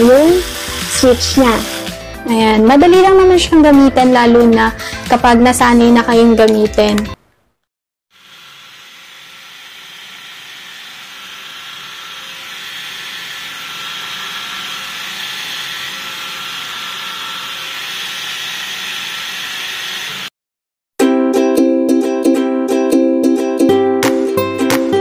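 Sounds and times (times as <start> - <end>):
epilator motor whirring: 0.0 - 2.1, 8.2 - 20.3.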